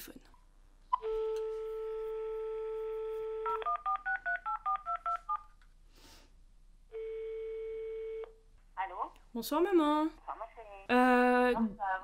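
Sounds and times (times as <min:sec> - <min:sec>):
phone dial tone: 0:01.0 - 0:05.4, 0:07.0 - 0:08.4.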